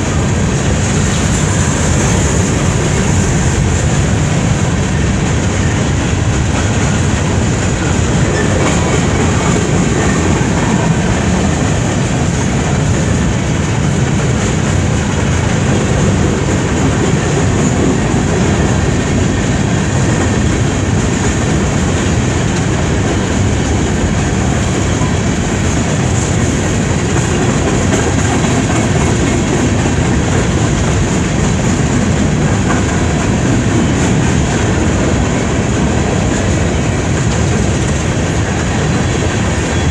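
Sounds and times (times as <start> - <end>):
freight train rolling on rails: 0.0 - 39.9.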